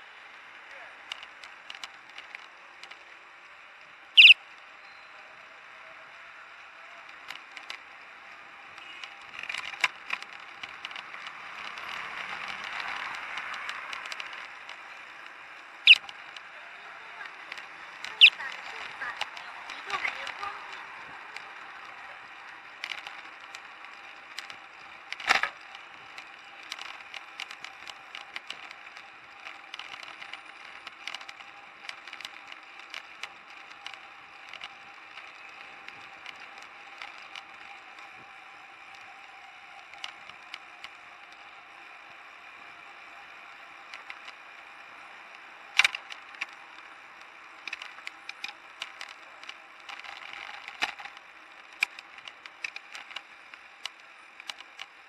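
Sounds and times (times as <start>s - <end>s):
street and tyre noise: 0.0s - 55.0s
bicycle gear rattling: 17.3s - 42.0s, 43.5s - 55.0s.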